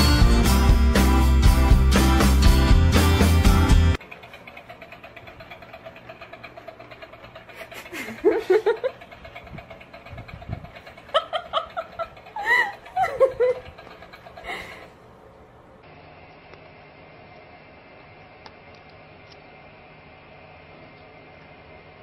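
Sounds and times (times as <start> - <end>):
toy motor ticking: 4.0 - 14.9
person laughing: 7.5 - 9.1, 10.8 - 14.9.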